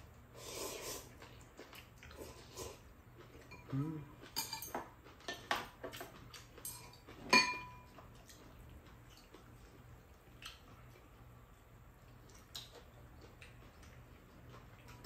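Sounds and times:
spoons clinking against bowls: 4.4 - 5.7, 6.6 - 7.9.

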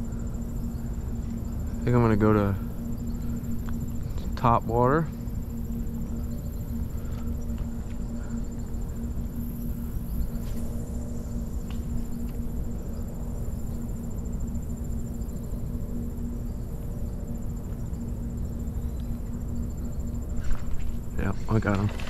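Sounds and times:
insects trilling: 0.0 - 22.0
low rumble and hum: 0.0 - 22.0.

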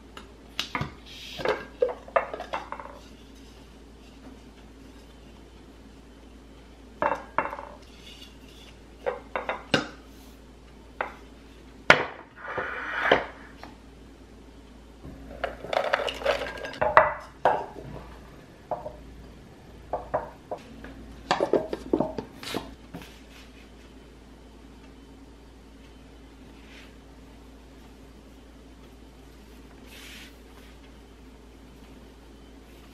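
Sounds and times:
glass containers clinking: 15.4 - 17.8.

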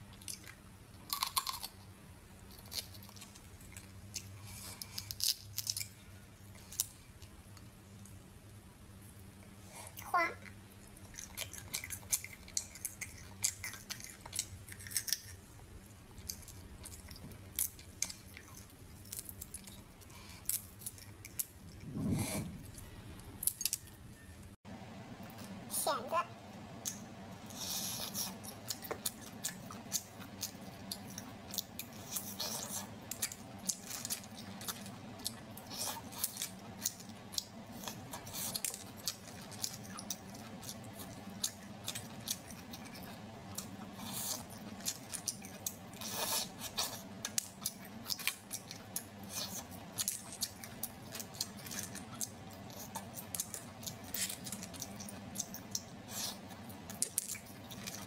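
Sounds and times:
sucking and chewing sounds: 0.0 - 7.4, 9.6 - 15.5, 26.8 - 58.0.

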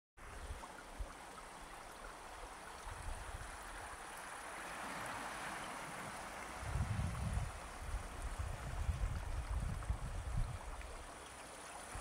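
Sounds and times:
surf washing on pebbles: 3.6 - 9.4
wind bumps on microphone: 6.6 - 10.8.

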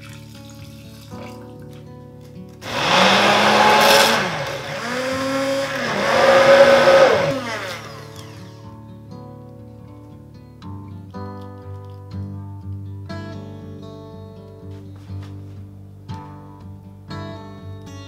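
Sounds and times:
immersion blender running: 2.6 - 8.6.

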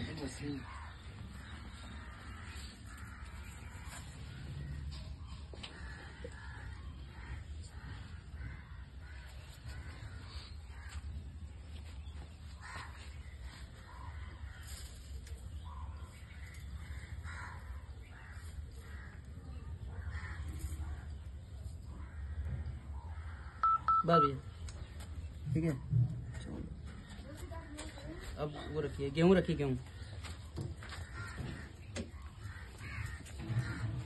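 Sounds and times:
crows cawing: 0.1 - 4.7, 5.5 - 11.2, 12.5 - 21.2, 21.8 - 24.3, 29.6 - 34.0.

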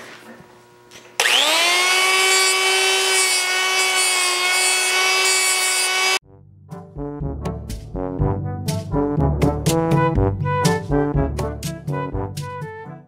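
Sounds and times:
die grinder whine: 1.0 - 6.2.

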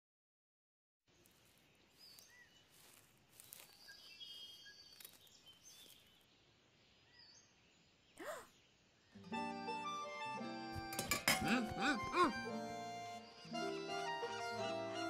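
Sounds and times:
small bird chirps: 1.2 - 9.2.

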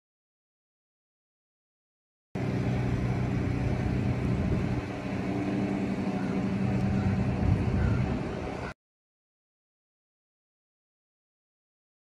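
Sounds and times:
low engine hum: 2.4 - 8.8.

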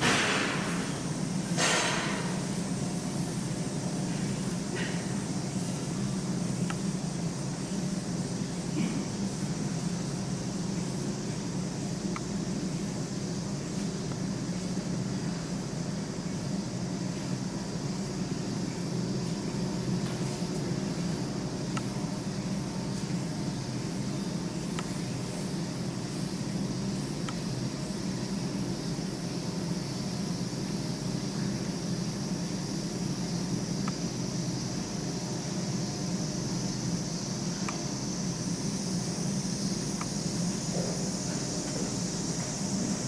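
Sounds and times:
steady background hum: 0.0 - 43.0
faint ticks: 21.7 - 21.9, 33.8 - 34.0, 37.6 - 37.9.

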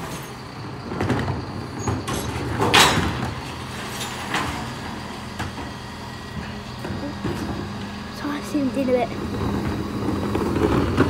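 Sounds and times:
bins clattering: 0.0 - 5.4
lorry engine running: 0.0 - 11.0.

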